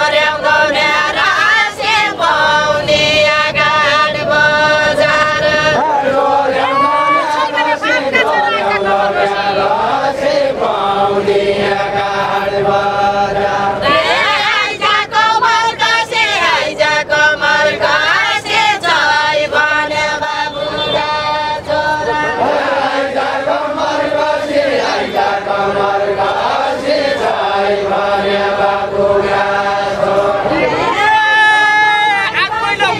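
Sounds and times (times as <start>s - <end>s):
group singing folk song in unison: 0.0s - 31.2s.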